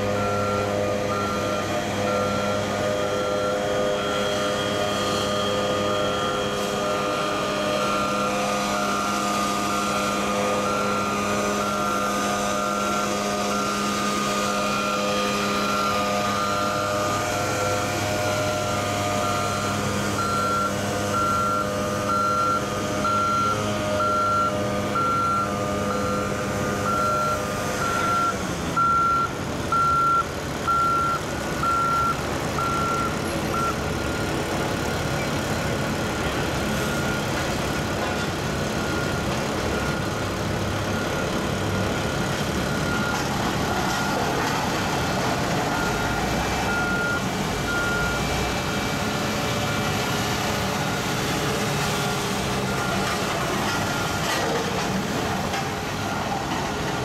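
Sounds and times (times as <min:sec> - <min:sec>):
diesel engines running: 0:00.0 - 0:57.0
backup alarm beeping: 0:00.1 - 0:09.0, 0:10.4 - 0:34.4, 0:40.9 - 0:43.3, 0:45.7 - 0:48.3.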